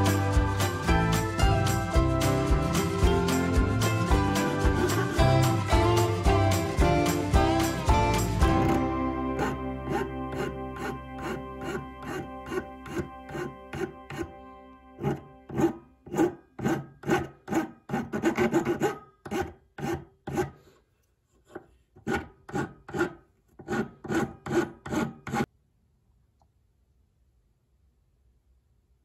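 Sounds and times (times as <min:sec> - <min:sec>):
hand file rasping on wood: 0:02.6 - 0:08.8, 0:09.4 - 0:14.3, 0:15.0 - 0:20.8, 0:21.4 - 0:25.5.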